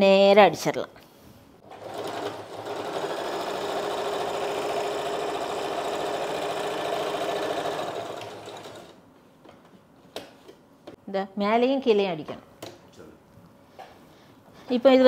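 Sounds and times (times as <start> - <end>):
sewing machine running: 1.6 - 9.0.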